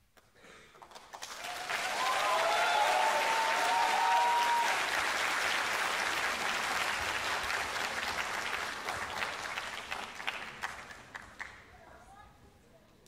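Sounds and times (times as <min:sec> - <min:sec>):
audience applause: 0:00.8 - 0:11.5
high cheering calls: 0:01.4 - 0:05.1.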